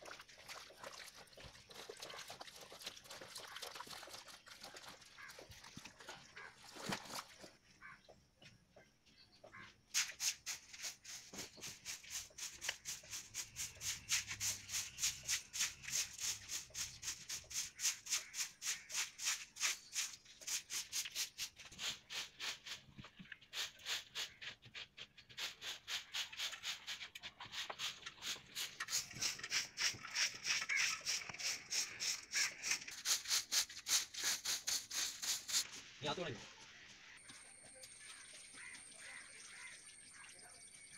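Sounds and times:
hand broom sweeping earth floor: 9.8 - 36.4.

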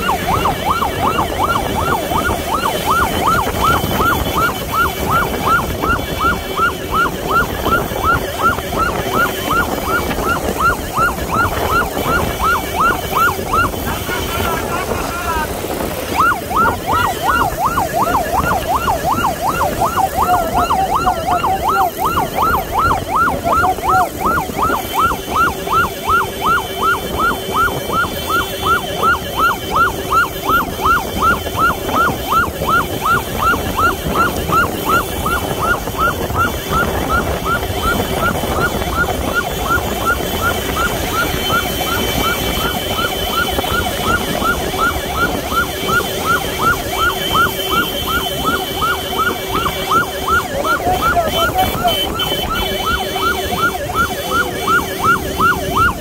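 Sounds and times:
electronic siren yelping: 0.0 - 56.0
motorcycle engines in traffic: 0.0 - 56.0.

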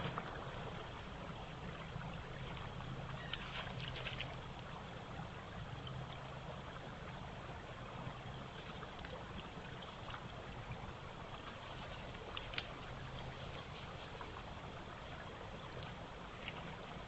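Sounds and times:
rushing outdoor noise: 0.0 - 17.0
faint ticks: 12.2 - 12.8, 15.7 - 16.6.

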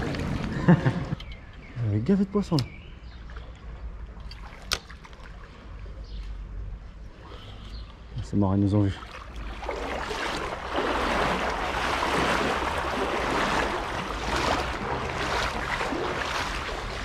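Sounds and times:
river water rushing: 9.2 - 17.0.

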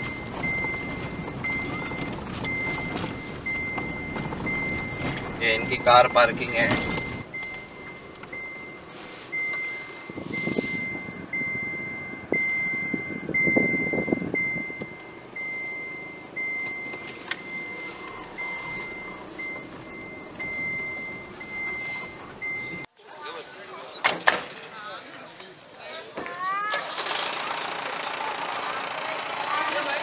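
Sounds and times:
low rumble of vehicle: 0.0 - 22.9, 23.8 - 30.0
reversing beeper: 0.0 - 22.9.

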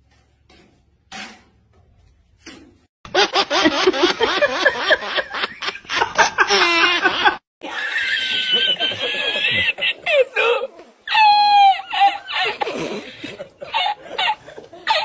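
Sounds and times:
loud laughter: 3.3 - 12.6.

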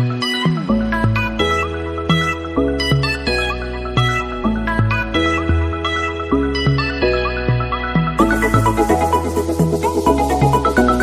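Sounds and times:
held low bass: 3.2 - 6.5.

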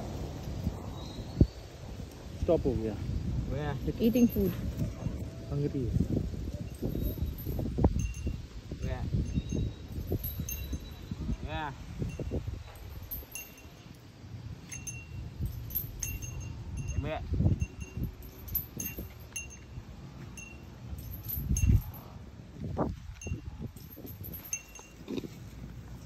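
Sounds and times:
low rumbling wind: 0.0 - 26.0
small bell tinkling: 3.7 - 5.4, 6.1 - 22.2, 23.0 - 25.5.

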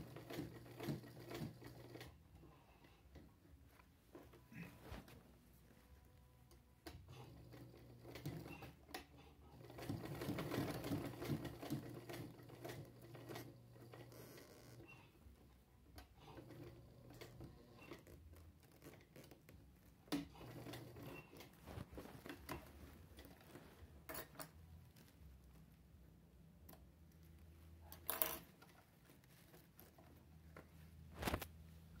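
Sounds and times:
fabric rustling: 3.6 - 6.1, 19.7 - 25.8, 28.6 - 32.0.

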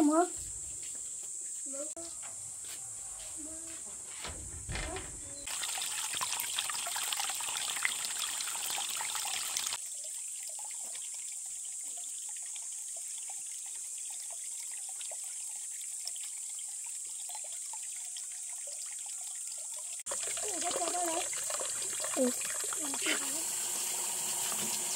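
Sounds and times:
water trickling: 4.3 - 24.9
water gushing from pipe into pond: 5.4 - 24.9.

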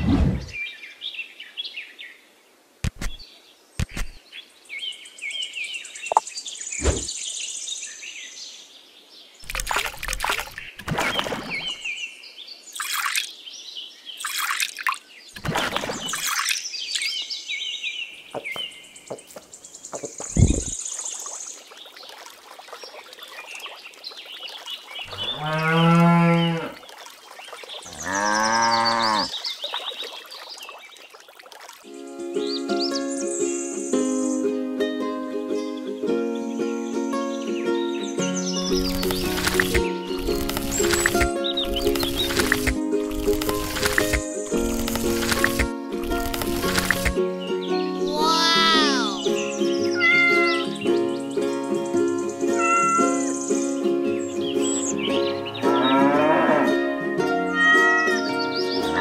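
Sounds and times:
cow mooing: 25.1 - 26.8, 27.9 - 29.3, 55.8 - 56.8.

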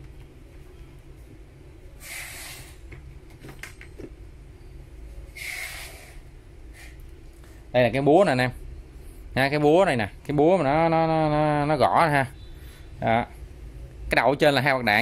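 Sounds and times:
low steady hum: 0.0 - 15.0
short hissing sounds: 2.0 - 2.8, 5.3 - 7.0.

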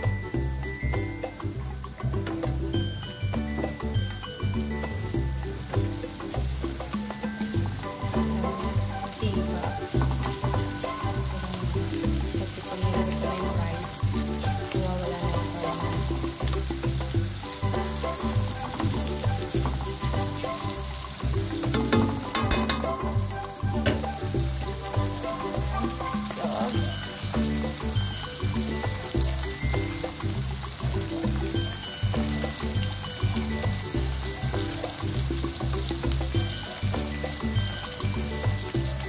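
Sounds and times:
background music with bass beat: 0.0 - 39.0
food sizzling in oil in a wok: 0.0 - 39.0
spatula scraping and tapping a pan: 21.2 - 24.4.

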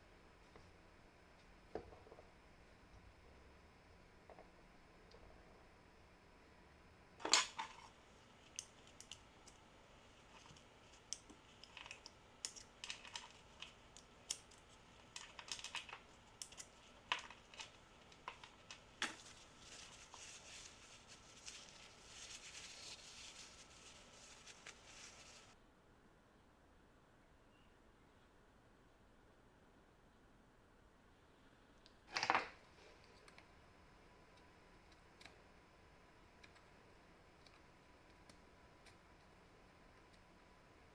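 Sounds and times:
small steel parts clinking: 11.1 - 19.4
paper towel rustling: 16.8 - 25.6.

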